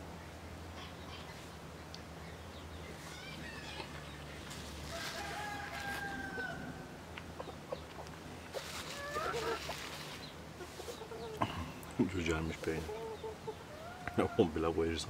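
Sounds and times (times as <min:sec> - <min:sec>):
low steady hum: 0:00.0 - 0:15.0
rooster crowing: 0:04.8 - 0:06.9.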